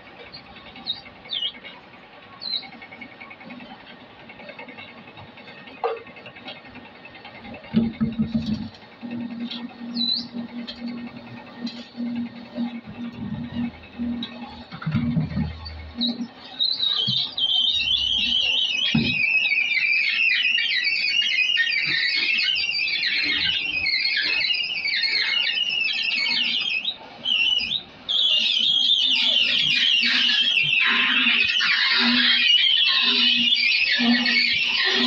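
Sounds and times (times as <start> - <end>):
oil expeller knocking and hum: 0.0 - 19.3
shrill fluttering screech: 21.6 - 35.0.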